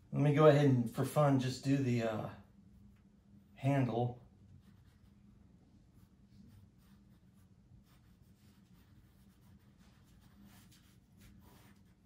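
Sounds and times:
low steady hum: 0:00.0 - 0:12.0
pencil scratching on paper: 0:04.6 - 0:12.0.

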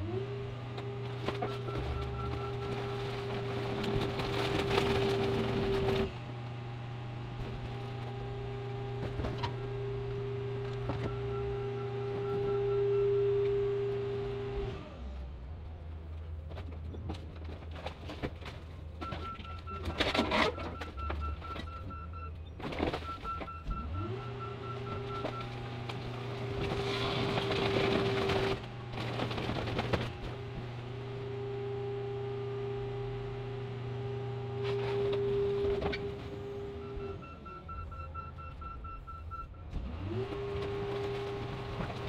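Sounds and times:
metal crunching and scraping: 0:00.2 - 0:11.2, 0:15.9 - 0:31.4, 0:39.7 - 0:42.0
backup alarm beeping: 0:11.1 - 0:13.3, 0:36.6 - 0:39.6.

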